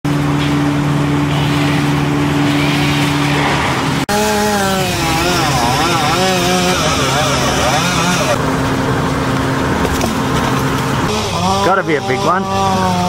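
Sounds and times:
engine wavering in pitch: 0.1 - 13.0
steady engine running: 0.1 - 13.0.

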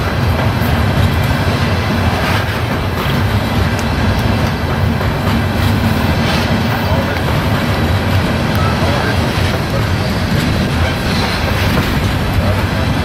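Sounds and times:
freight train rumbling past: 0.0 - 13.0
train wheels clicking over rails: 0.0 - 13.0.

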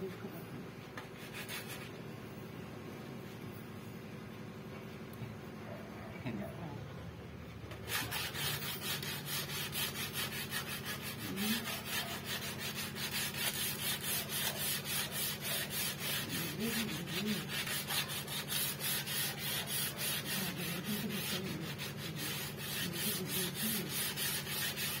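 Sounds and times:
sandpaper rubbing on wood: 1.1 - 2.0, 7.8 - 25.0.

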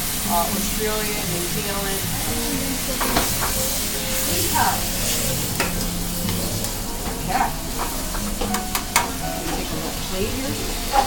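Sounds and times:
vegetables sizzling in oil: 0.0 - 11.0
tongs scraping a pan: 2.8 - 9.7.

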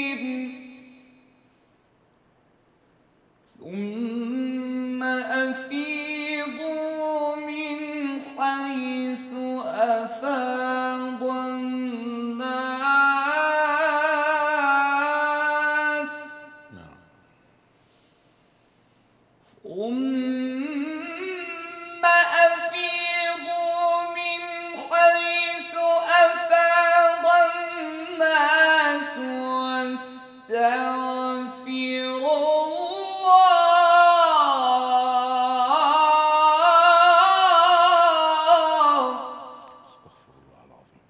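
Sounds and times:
man chanting: 3.6 - 17.1, 19.6 - 41.0.

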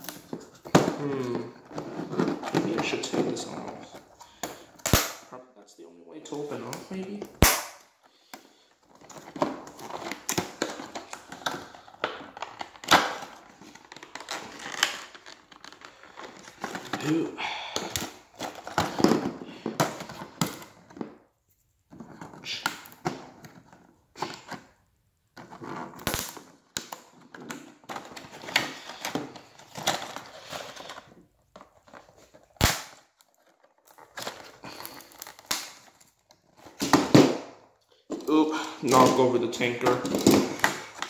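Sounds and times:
plastic packaging crinkling: 8.0 - 17.3, 25.6 - 37.0, 37.9 - 41.0
plastic snapping: 32.6 - 36.1.

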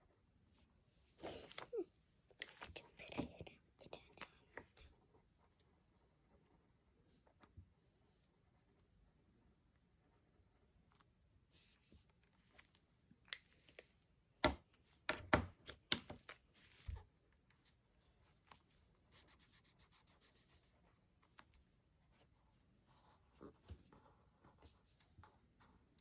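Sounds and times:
marker caps clicking and knocking: 14.4 - 16.4
markers scratching on card: 18.5 - 21.4.

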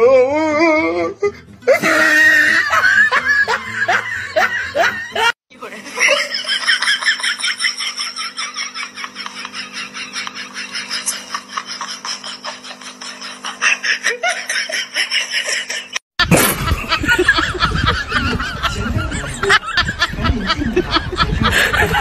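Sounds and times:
person giggling: 1.7 - 5.4, 9.0 - 22.0.

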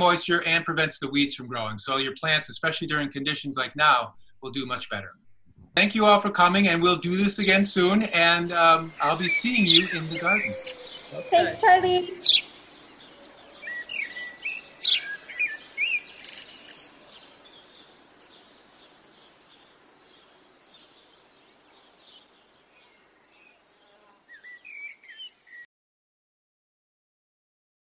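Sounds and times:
faint steady hiss: 0.0 - 25.5
small birds chirping: 4.1 - 25.7.

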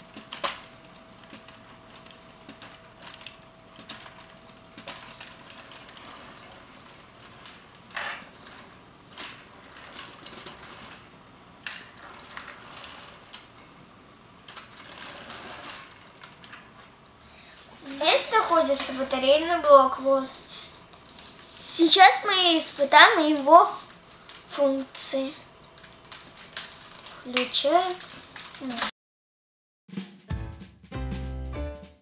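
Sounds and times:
plastic parts clicking and rattling: 0.0 - 13.7, 14.3 - 16.9, 22.9 - 24.6, 25.6 - 28.9.

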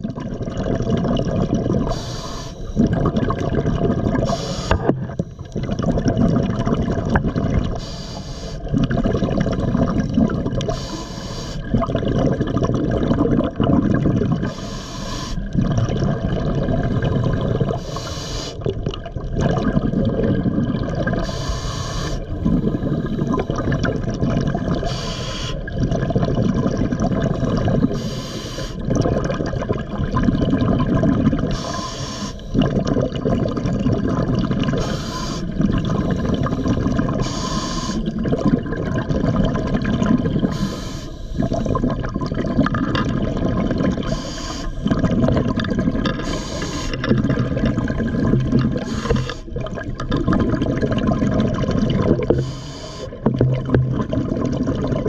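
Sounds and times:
bubbling exhaled air: 0.0 - 55.0
scuba regulator hissing inhalation: 1.9 - 2.8, 4.2 - 4.9, 7.8 - 8.7, 10.7 - 11.7, 14.4 - 15.5, 17.8 - 18.6, 21.2 - 23.4, 24.8 - 25.7, 27.8 - 28.8, 31.5 - 32.6, 34.8 - 38.1, 40.4 - 41.7, 44.0 - 44.9, 46.2 - 47.0, 48.8 - 49.6, 52.3 - 53.2.

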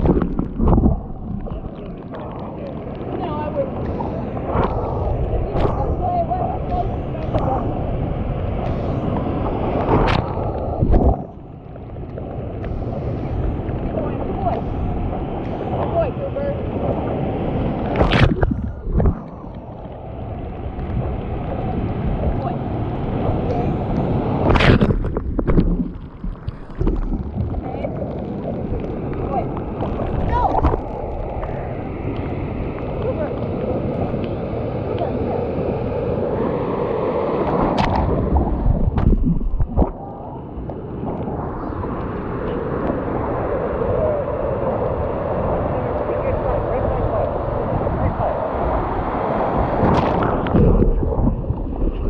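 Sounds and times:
water splashing against surfboard: 0.0 - 11.4, 16.6 - 19.9, 20.7 - 35.4, 36.6 - 40.0, 48.6 - 52.0.

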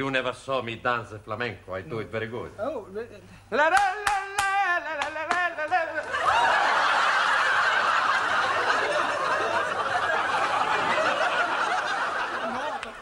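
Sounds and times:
studio audience laughing: 6.0 - 13.0.

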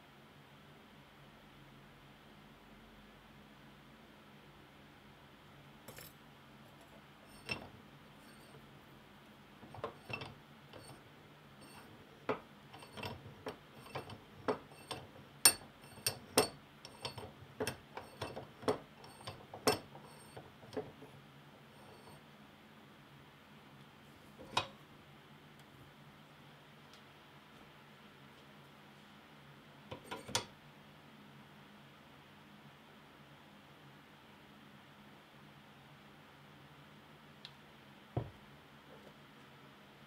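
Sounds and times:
metallic clinks of steel parts: 5.9 - 6.2.

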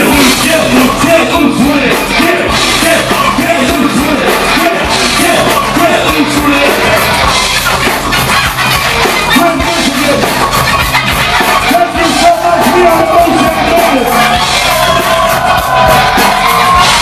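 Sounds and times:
person singing and shouting: 0.0 - 7.4, 9.3 - 10.4, 11.6 - 17.0
live band music: 0.0 - 17.0
pounding drum beat: 0.0 - 17.0.

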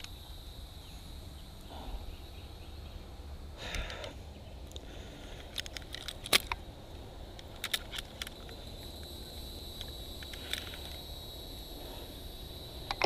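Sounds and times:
steady low rumble: 0.1 - 13.0.

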